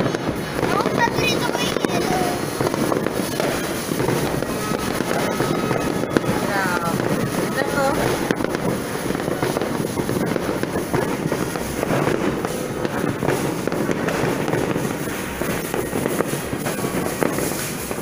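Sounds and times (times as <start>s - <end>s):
fireworks crackling and banging: 0.0s - 18.0s.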